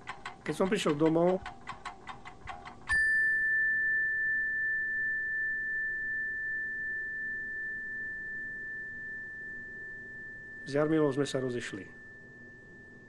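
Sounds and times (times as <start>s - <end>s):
struck chime ringing: 2.9s - 13.0s.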